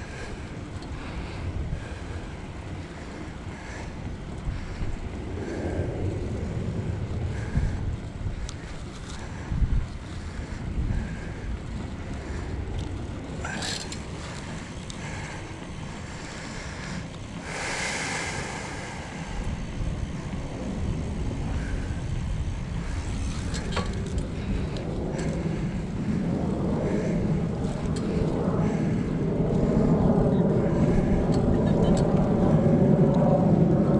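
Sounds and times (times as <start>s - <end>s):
wind buffeting camera microphone: 0.0s - 33.9s.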